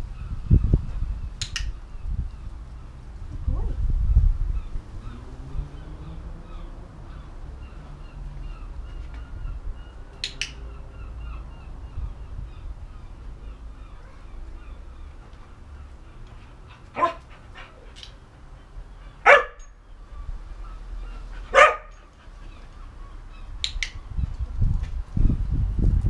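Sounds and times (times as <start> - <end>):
low outdoor rumble: 0.0 - 26.0
clicker double snap: 1.4 - 1.7, 10.2 - 10.6, 23.6 - 24.0.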